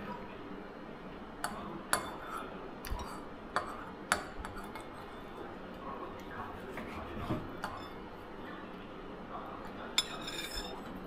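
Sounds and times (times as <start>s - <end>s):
cutlery clinking against dishes: 7.5s - 8.0s, 10.0s - 11.0s.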